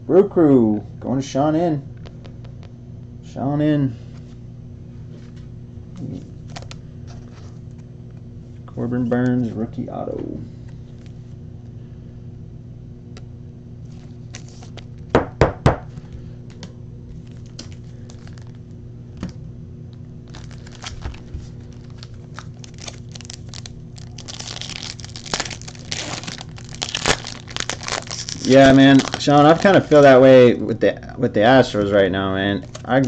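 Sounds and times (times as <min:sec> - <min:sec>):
low steady hum: 0:00.0 - 0:33.0
foil wrapper crinkling and tearing: 0:06.4 - 0:06.8, 0:13.8 - 0:15.0, 0:17.1 - 0:18.7, 0:20.2 - 0:30.4.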